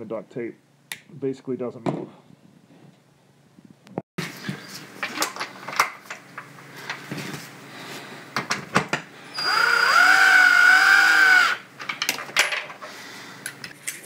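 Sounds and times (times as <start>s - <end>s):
cordless drill motor whine: 9.3s - 11.6s.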